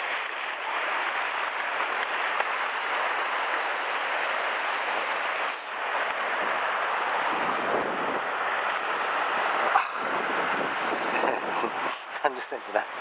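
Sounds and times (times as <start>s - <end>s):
surf washing over rocks: 0.0s - 13.0s.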